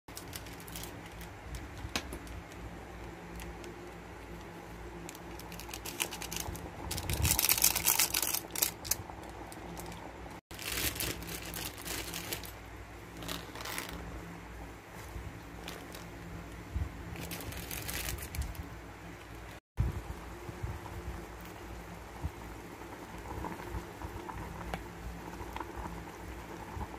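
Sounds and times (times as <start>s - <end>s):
foil sachet crinkling: 0.1s - 14.0s, 15.5s - 16.4s, 17.1s - 18.7s
foil sachet rustling: 0.1s - 14.0s, 15.2s - 16.4s, 17.1s - 18.7s
water boiling and bubbling: 0.1s - 26.9s.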